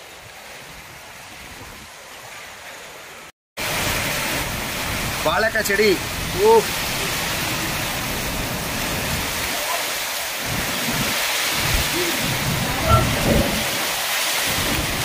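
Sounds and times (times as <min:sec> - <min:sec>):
heavy rain pouring: 0:03.6 - 0:15.0
thunder rumbling: 0:10.4 - 0:15.0.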